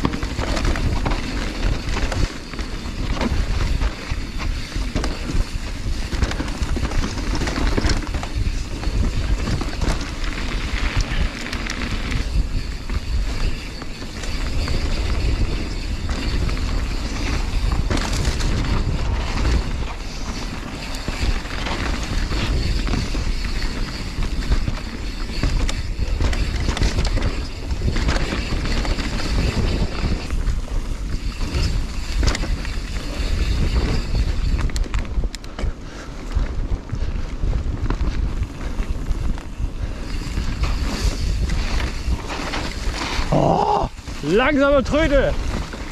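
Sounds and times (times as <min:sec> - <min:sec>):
bike rattling and knocking: 0:00.0 - 0:45.9
tyres rolling over dirt and leaves: 0:00.0 - 0:45.9
wind buffeting microphone: 0:00.0 - 0:45.9.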